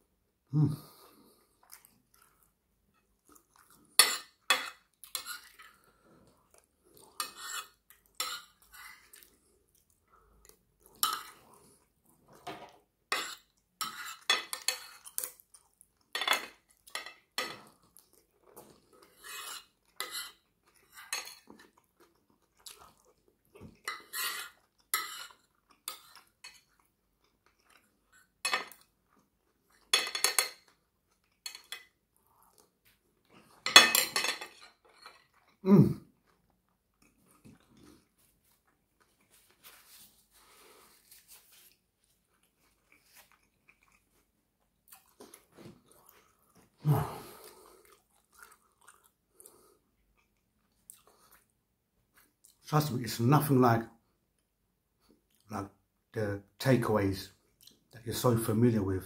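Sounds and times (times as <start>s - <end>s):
cutlery scraping a plate: 4.0s - 5.8s, 7.2s - 9.1s, 12.5s - 15.3s, 19.1s - 21.5s, 23.9s - 26.7s, 28.4s - 28.8s, 29.9s - 30.7s, 31.4s - 31.9s, 33.6s - 35.3s.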